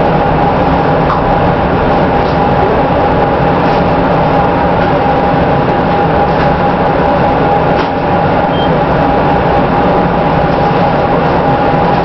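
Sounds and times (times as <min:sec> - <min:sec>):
steady whine: 0:00.0 - 0:12.0
train wheels rumbling on rails: 0:00.0 - 0:12.0.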